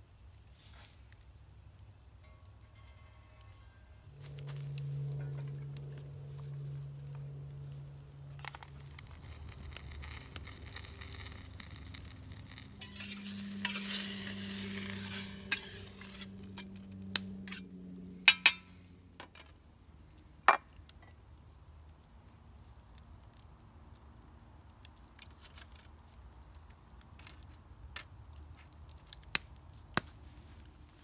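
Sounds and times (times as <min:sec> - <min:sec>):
campfire crackling and popping: 0:00.0 - 0:31.0
metal spoon clinking on pan: 0:18.3 - 0:18.7.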